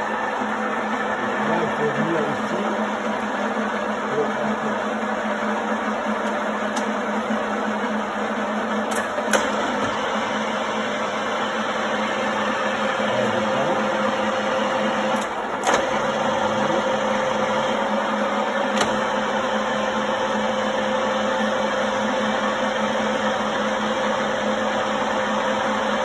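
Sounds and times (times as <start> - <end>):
milling machine humming: 0.0 - 26.0.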